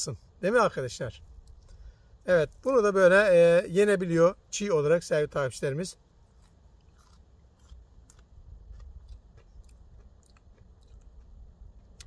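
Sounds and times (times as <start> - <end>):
person chewing crunchy stem: 1.2 - 2.8, 5.9 - 12.0.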